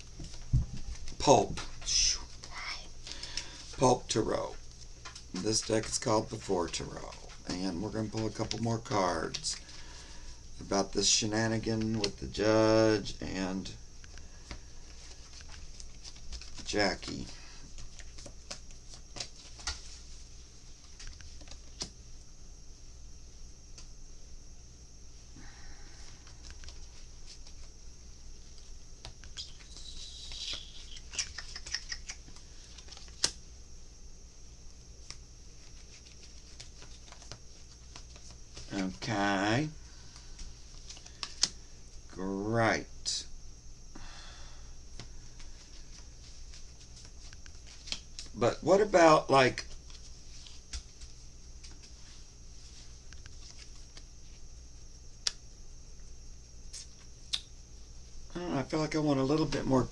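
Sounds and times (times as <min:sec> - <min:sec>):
faint hiss and hum: 0:00.0 - 0:59.9
cards being shuffled: 0:14.1 - 0:21.9, 0:28.4 - 0:33.4, 0:35.0 - 0:39.0, 0:40.1 - 0:41.6, 0:44.9 - 0:48.4, 0:49.6 - 0:54.4.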